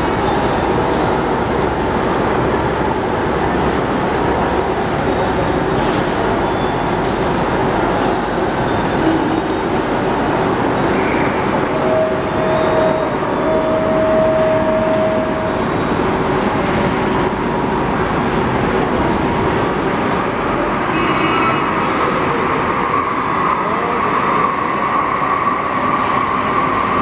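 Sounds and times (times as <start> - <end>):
metro train rumbling in tunnel: 0.0 - 27.0
steady whine: 11.3 - 19.7.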